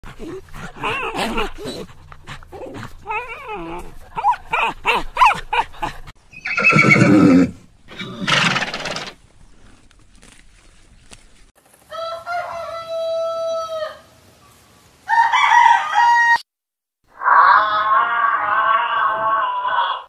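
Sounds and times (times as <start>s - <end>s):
horses neighing: 3.1s - 9.2s.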